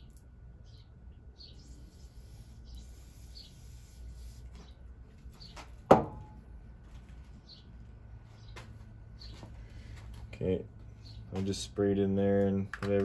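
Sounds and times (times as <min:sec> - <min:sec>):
birds chirping: 0:00.0 - 0:05.9, 0:07.0 - 0:12.7
aerosol spray hiss: 0:01.8 - 0:04.5
sharp ringing knock: 0:05.9 - 0:06.4.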